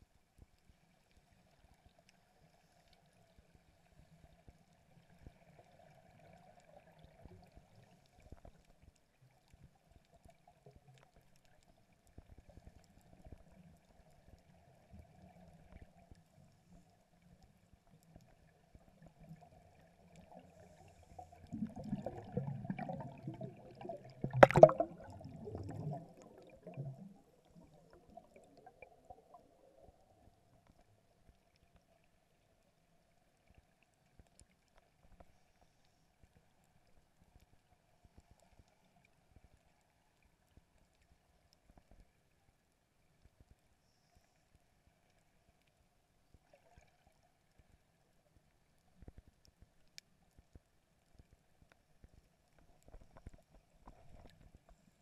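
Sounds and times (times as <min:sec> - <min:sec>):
faint steady hum: 0:00.0 - 0:55.0
faint underwater clicks: 0:00.2 - 0:55.0
low rumbling bubbling: 0:21.4 - 0:29.4.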